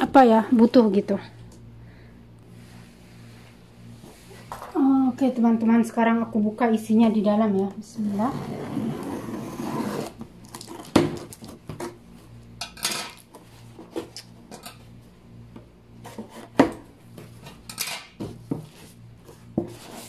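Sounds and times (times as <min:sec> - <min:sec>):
rustling scrapes: 0:18.7 - 0:20.0.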